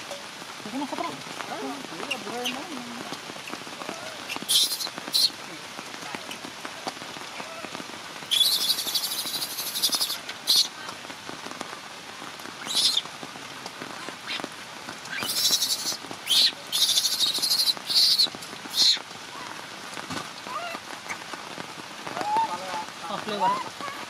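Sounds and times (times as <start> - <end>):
steady rain: 0.0 - 24.0
shrill animal calls: 4.3 - 5.3, 8.3 - 10.7, 12.6 - 13.0, 15.1 - 19.0.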